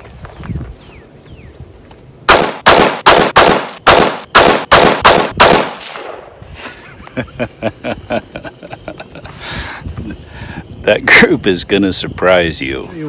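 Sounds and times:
rifle shots with ringing echo: 2.3 - 6.4.

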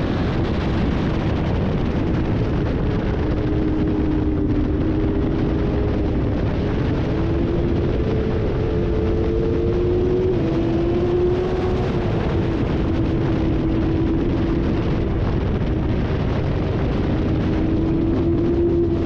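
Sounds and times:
motorcycle engine at high revs: 0.0 - 19.0
wind rush: 0.0 - 19.0.

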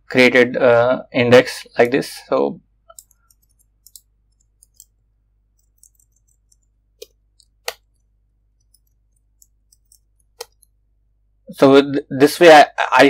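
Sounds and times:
typing on computer keyboard: 2.9 - 5.0, 5.6 - 10.7.

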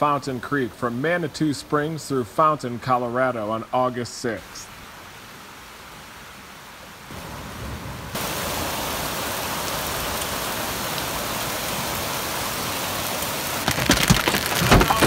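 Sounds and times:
flood water rushing down creek: 0.0 - 15.0
sharp knocks: 13.7 - 15.0.

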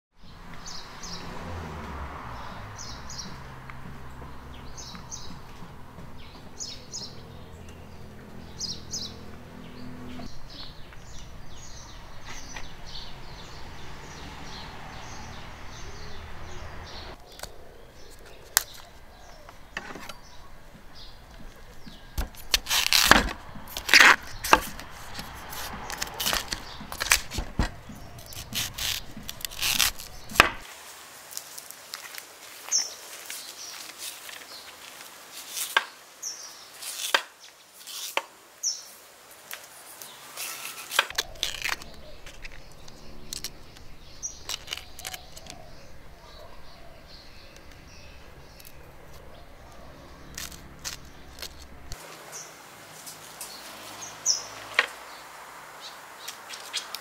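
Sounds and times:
birds chirping: 0.1 - 30.7, 32.6 - 37.7, 39.7 - 57.0
cleaver chopping on wooden board: 19.8 - 30.6.

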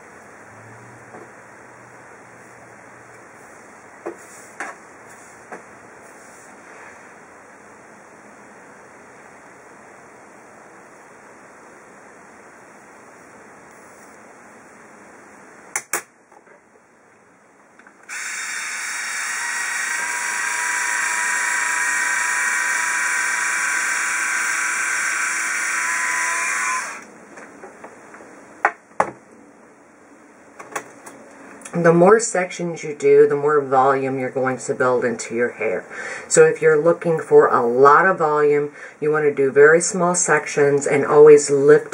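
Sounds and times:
faint steady hiss: 0.0 - 18.1
hair iron motor whirring: 18.0 - 27.1.

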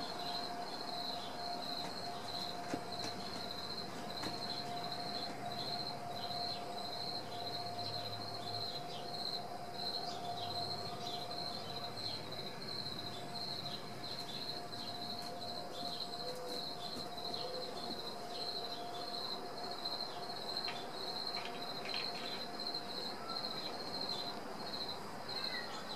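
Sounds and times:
steady hum: 0.0 - 25.3
insects chirring: 0.0 - 25.9.

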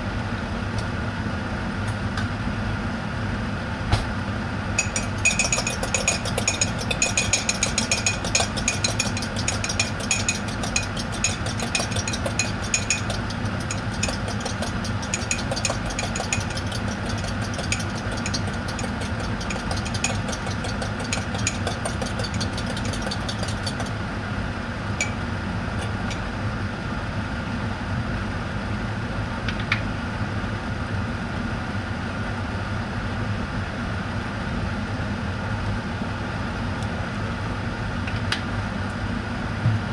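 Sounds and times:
mechanical hum: 0.0 - 39.9
fork clinking against ceramic cup: 4.8 - 23.9.

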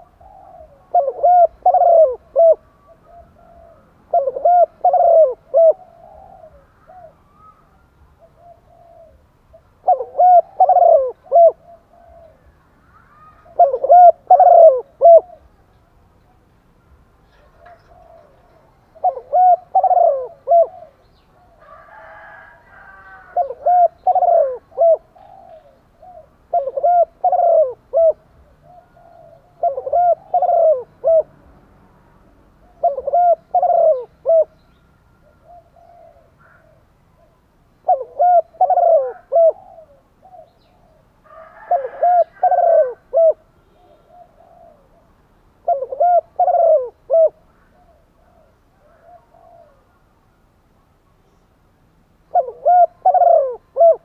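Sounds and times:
dove cooing: 0.0 - 15.6, 17.4 - 31.3, 32.6 - 50.1, 52.3 - 54.0.

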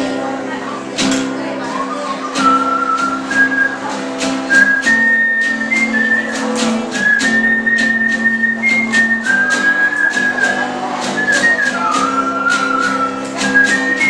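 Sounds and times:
acoustic guitar strumming: 0.0 - 14.0
person whistling a melody: 2.4 - 14.0.

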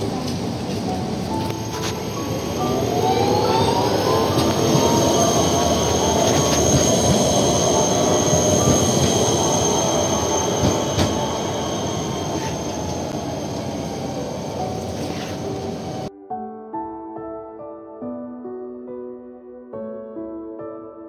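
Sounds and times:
tram rolling past: 0.0 - 16.1
high-pitched wheel tone on rails: 1.4 - 16.1.

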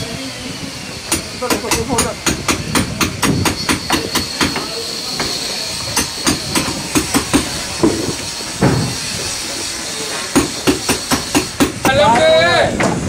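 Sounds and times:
thin steady high whine: 0.0 - 12.7
hammer blows: 1.1 - 13.0.

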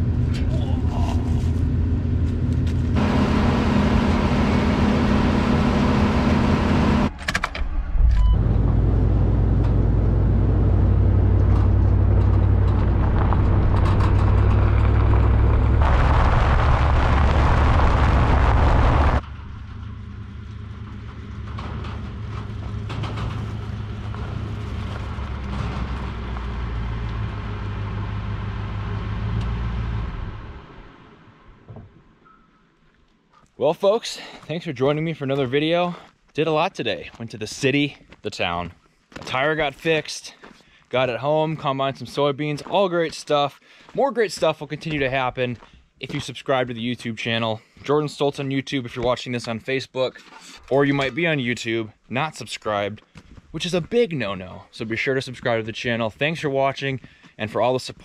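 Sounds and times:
combine engine running: 0.0 - 7.1
truck driving on gravel: 0.0 - 7.2, 8.4 - 31.6, 41.0 - 49.8.

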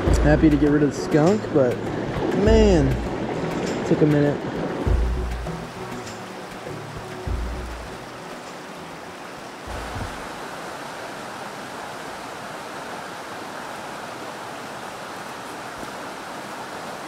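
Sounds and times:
stream running over rocks: 0.0 - 17.0
soft low thump: 4.9 - 5.5, 9.7 - 10.2.

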